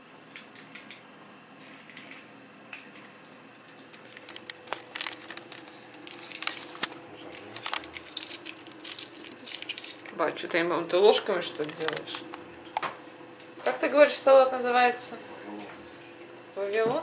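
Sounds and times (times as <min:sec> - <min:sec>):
faint steady hum: 0:00.0 - 0:17.0
eggs and plastic tray clicking: 0:11.5 - 0:12.4.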